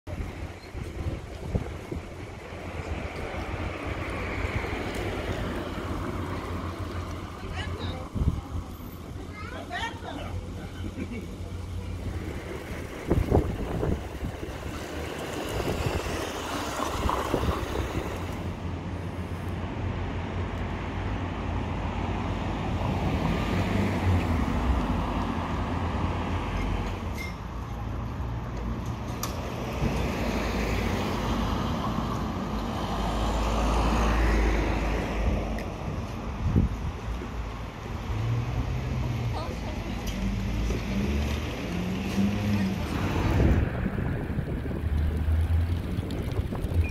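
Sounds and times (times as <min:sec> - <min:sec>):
cars driving past: 0:00.1 - 0:46.9.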